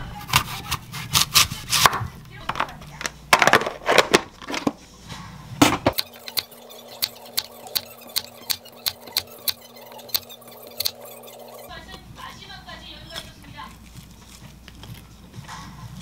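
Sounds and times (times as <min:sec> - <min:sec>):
knife slicing apple on board: 0:00.2 - 0:02.1, 0:05.7 - 0:11.5
plastic tub and lid clattering: 0:02.5 - 0:04.8.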